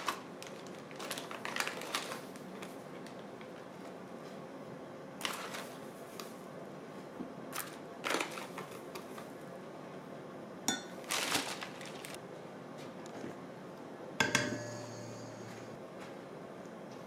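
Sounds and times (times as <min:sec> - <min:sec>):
utensils and bowls scraping and clinking: 0:14.2 - 0:15.8.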